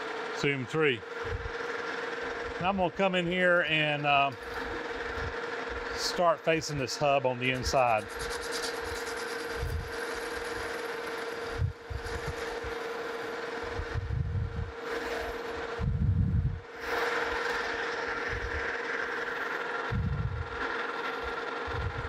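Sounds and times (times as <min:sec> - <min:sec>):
metal lathe whining: 0:00.0 - 0:14.0, 0:14.7 - 0:15.8, 0:16.6 - 0:19.9
low rumbles: 0:19.9 - 0:20.6.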